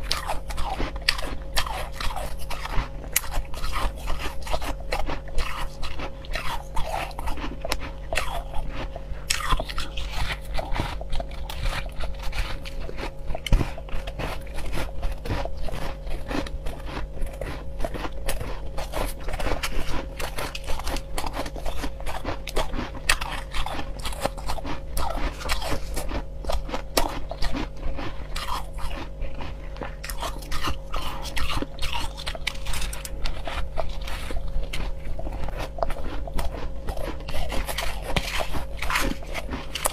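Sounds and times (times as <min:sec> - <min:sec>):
chewing crushed ice: 0:00.0 - 0:39.9.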